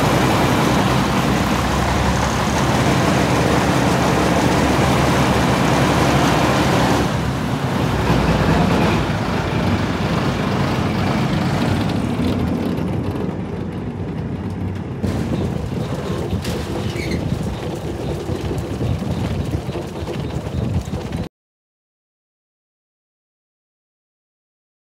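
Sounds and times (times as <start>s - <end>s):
heavy vehicle engine idling: 0.0s - 21.1s.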